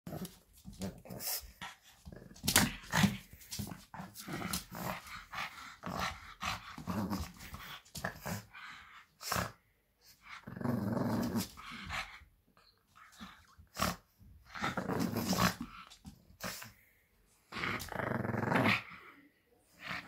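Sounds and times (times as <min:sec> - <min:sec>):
puppy growling: 0:10.2 - 0:12.2, 0:13.1 - 0:16.8, 0:17.5 - 0:19.1.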